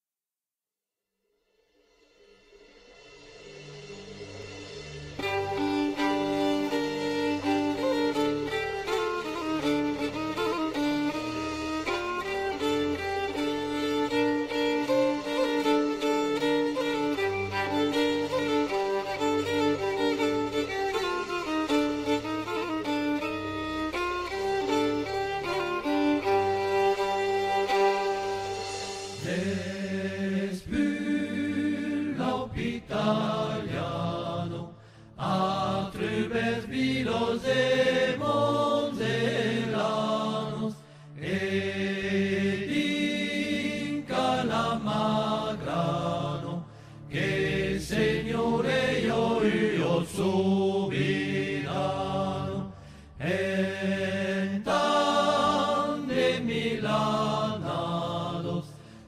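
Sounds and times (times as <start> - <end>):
voices singing chant: 29.1 - 59.0.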